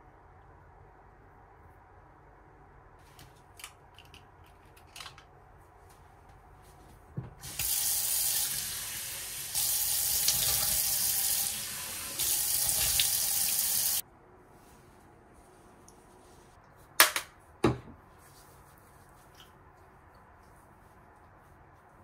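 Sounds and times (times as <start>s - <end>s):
tap water running into basin: 7.4s - 14.0s.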